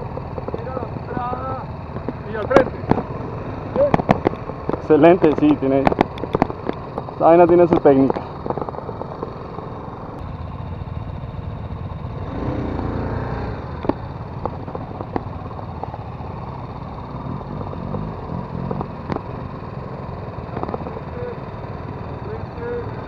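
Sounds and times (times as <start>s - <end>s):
motorcycle engines revving: 0.0s - 23.0s.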